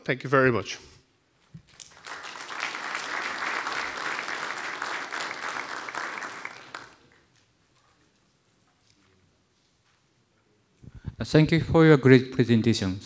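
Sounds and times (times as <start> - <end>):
audience applauding: 1.7 - 7.4.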